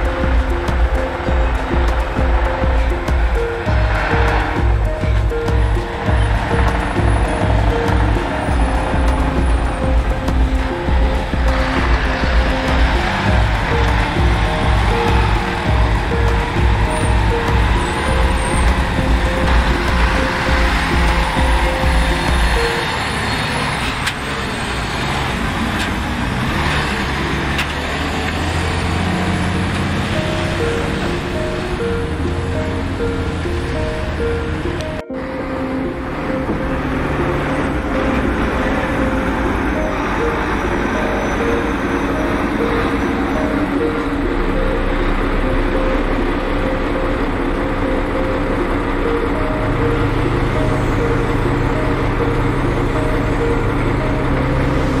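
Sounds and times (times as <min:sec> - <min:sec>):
excavator digging: 0:00.0 - 0:35.0
diesel truck engine running: 0:00.0 - 0:55.0.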